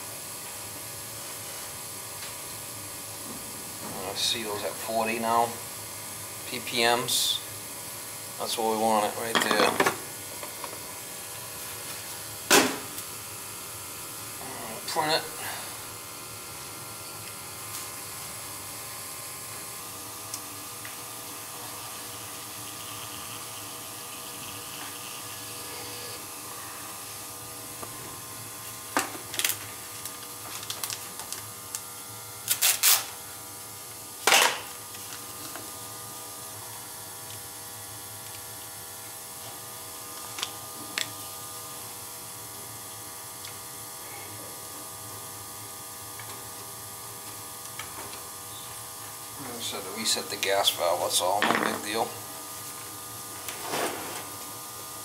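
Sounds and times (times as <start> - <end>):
gas boiler burner rushing: 0.0 - 13.3, 52.8 - 54.6.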